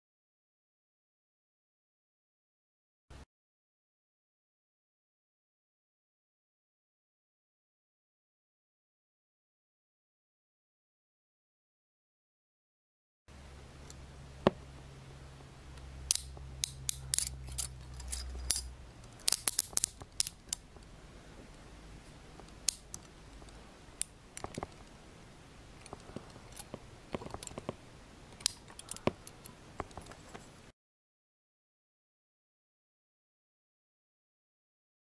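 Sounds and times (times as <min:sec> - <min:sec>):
handcuff ratchet clicking: 0:16.1 - 0:20.6, 0:22.5 - 0:23.1, 0:25.8 - 0:27.6, 0:28.4 - 0:30.1.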